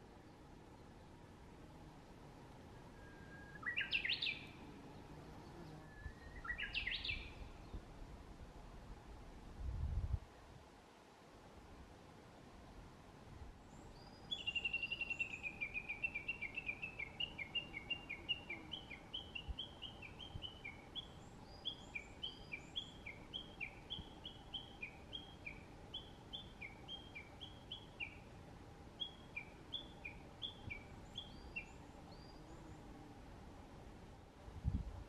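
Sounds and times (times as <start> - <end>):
bush warbler calling: 3.0 - 4.6, 5.9 - 7.7, 14.0 - 28.3, 29.0 - 32.8.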